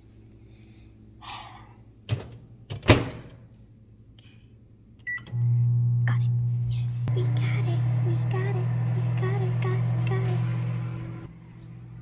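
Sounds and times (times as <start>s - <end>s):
microwave oven humming: 4.9s - 12.0s
microwave keypad beep: 5.1s - 5.4s.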